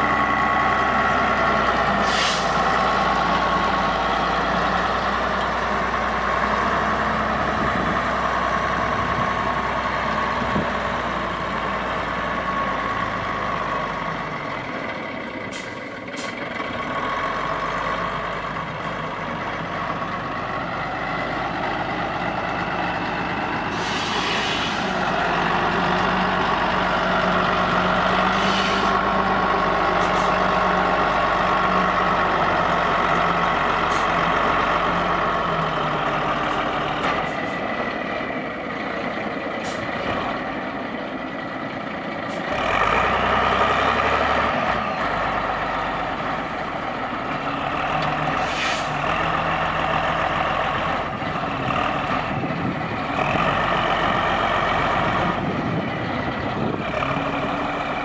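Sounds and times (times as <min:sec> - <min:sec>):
wheel loader diesel engine: 0:00.0 - 0:58.0
short hisses: 0:02.0 - 0:02.6, 0:23.7 - 0:24.9, 0:28.4 - 0:28.9, 0:48.4 - 0:49.0.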